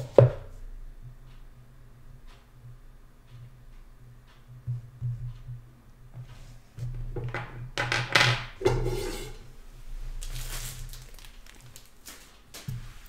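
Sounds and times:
steady low hum: 8.4 - 13.0.

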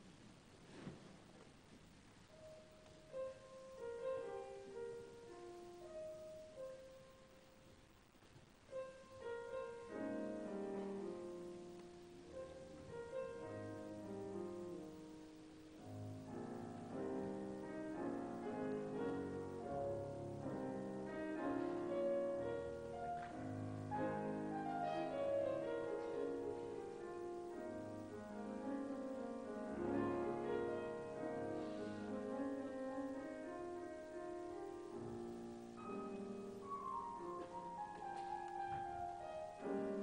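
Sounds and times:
classical piano music: 0.8 - 40.0.

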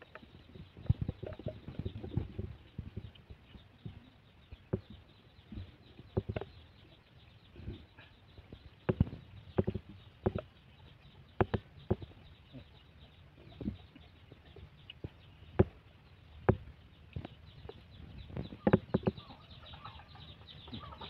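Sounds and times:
chickens clucking and peeping: 0.0 - 21.0
sharp knocks and clicks: 4.6 - 6.6, 8.5 - 10.5, 11.3 - 12.3, 15.0 - 15.8, 16.4 - 19.2.

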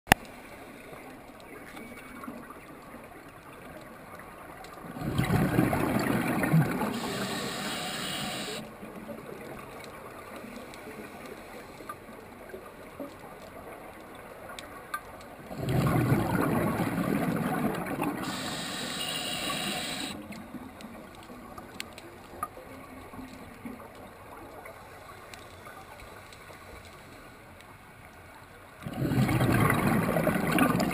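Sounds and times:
faint clicks: 0.1 - 29.3
exhaled bubbles rushing: 4.9 - 8.6, 15.5 - 20.2, 28.8 - 30.9
low underwater hiss: 4.9 - 13.8, 15.5 - 27.8.

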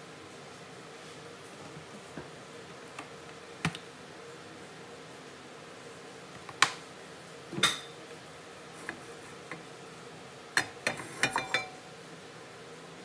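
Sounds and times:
clicks and clinks of kitchenware: 10.6 - 11.8
kitchenware knocking: 10.6 - 11.8.

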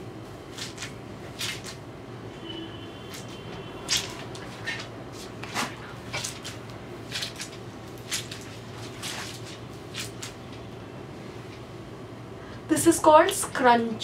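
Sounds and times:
wet hair squelching in hands: 3.1 - 10.6.

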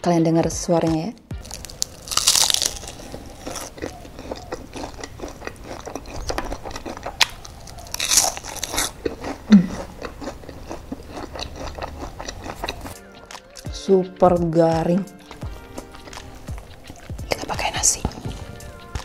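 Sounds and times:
crunching and chewing fried food: 1.4 - 13.7, 15.1 - 17.3.

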